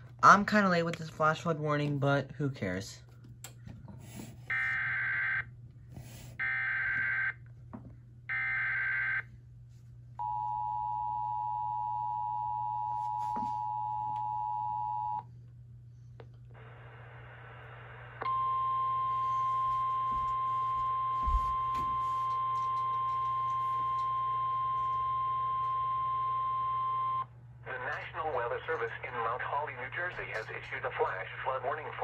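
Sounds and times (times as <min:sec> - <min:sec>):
radio static: 0:27.6 - 0:32.0.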